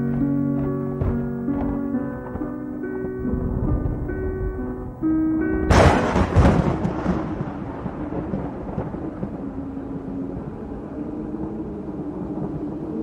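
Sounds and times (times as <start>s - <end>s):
thunder clap and rumble: 5.5s - 13.0s.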